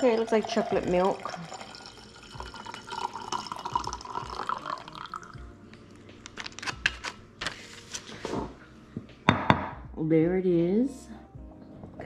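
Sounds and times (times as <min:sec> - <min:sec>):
liquid pouring into a cup: 0:00.0 - 0:05.5.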